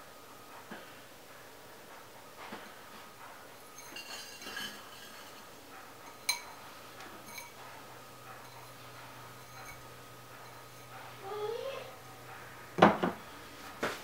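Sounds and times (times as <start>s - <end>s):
glass bowl clinking on crock: 3.7s - 6.6s, 7.2s - 7.6s, 9.4s - 9.8s.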